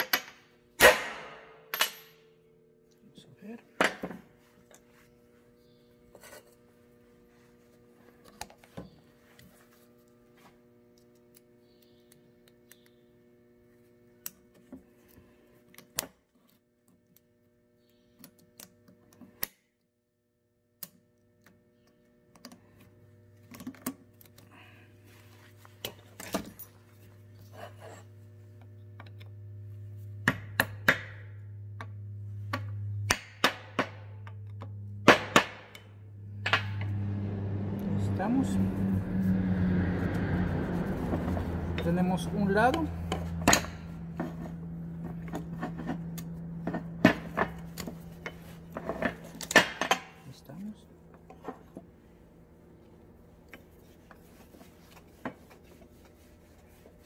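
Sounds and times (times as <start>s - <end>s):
steady low hum: 20.7s - 57.0s.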